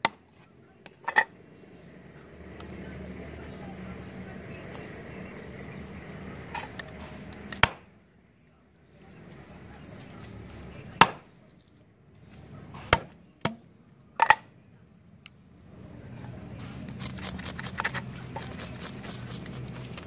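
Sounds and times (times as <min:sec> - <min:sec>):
knife scraping fish scales: 0:06.5 - 0:07.6, 0:16.8 - 0:20.0
cleaver chopping on wooden board: 0:07.5 - 0:07.9, 0:11.0 - 0:11.2, 0:12.8 - 0:13.6.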